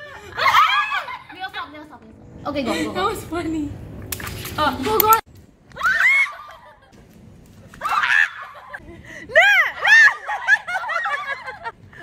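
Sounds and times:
girls shrieking and laughing: 0.0 - 1.6, 5.8 - 7.0, 7.8 - 11.8.

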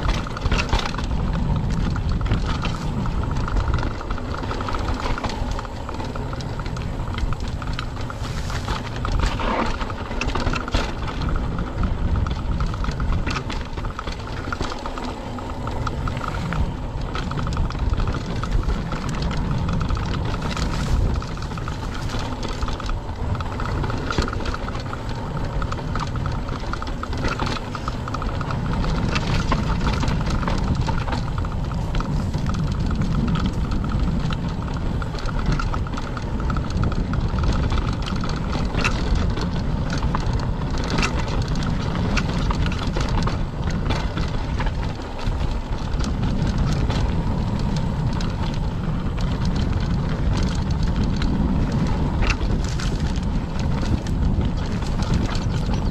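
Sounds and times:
bike clicks and rattles: 0.0 - 55.9
tyres rumbling on dirt: 0.0 - 55.9
rushing air: 1.4 - 10.2, 12.2 - 25.7.

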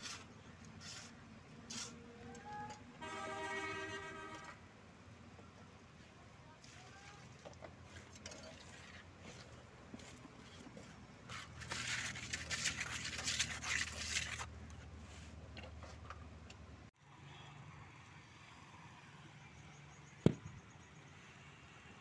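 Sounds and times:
trowel scraping cement on mesh: 0.0 - 2.3, 6.6 - 14.5.

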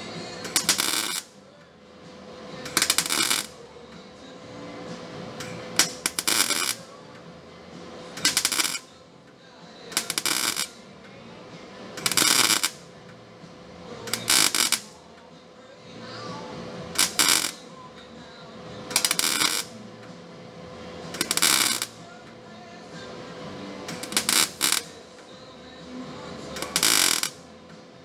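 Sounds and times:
welder crackling bursts: 0.0 - 1.3, 2.6 - 3.6, 5.4 - 6.9, 8.0 - 8.9, 9.9 - 10.8, 12.0 - 12.9, 14.0 - 15.0, 16.9 - 17.6, 18.8 - 19.8, 21.1 - 22.0, 23.8 - 25.3, 25.9 - 27.4.

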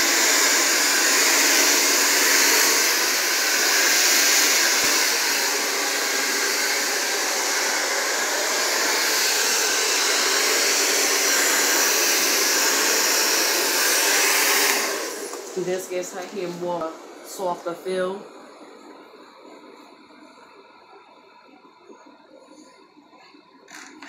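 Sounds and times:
blow dryer running: 0.0 - 18.8.

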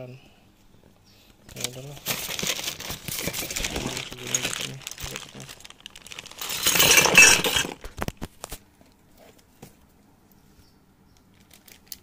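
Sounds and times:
faint handling sounds: 0.6 - 12.0
metal parts clicking in box: 1.5 - 8.1
plastic bag crinkling: 1.5 - 8.6, 11.3 - 12.0.

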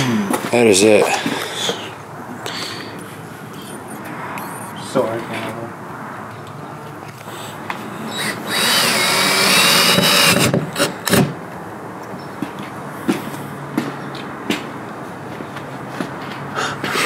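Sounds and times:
cordless drill whine: 7.9 - 11.2.

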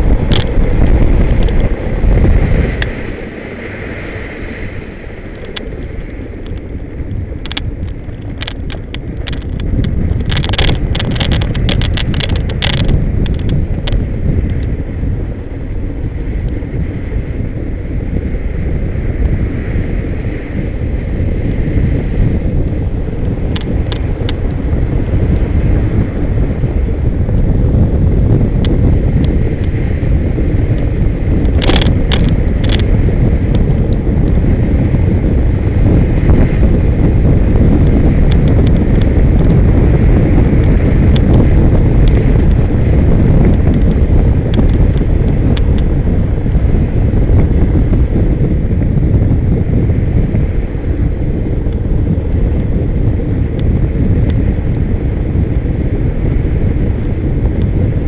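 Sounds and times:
wind buffeting microphone: 0.0 - 58.0
buggy clicks and rattles: 7.4 - 13.6, 31.5 - 32.9.

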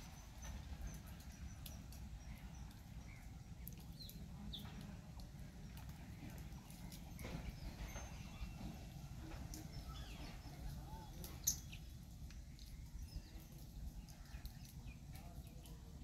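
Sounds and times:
faint chirping calls: 0.0 - 16.0
light ticks: 0.4 - 7.4, 12.2 - 15.8.

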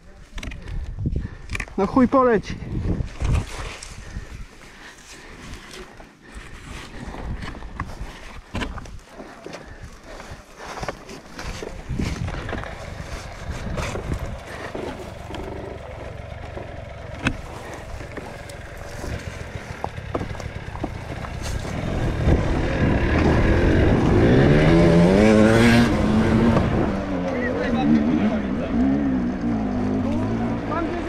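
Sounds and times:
bike rattling and scraping over dirt: 1.8 - 31.0
dirt bike engine revving: 12.2 - 31.0.

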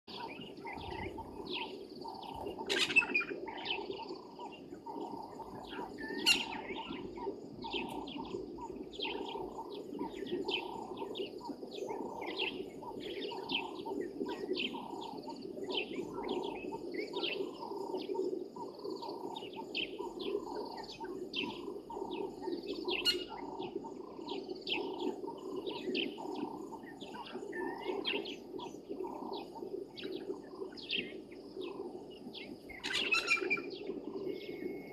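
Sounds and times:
birds chirping: 0.0 - 34.9
sharp loud bird calls: 5.6 - 9.6.

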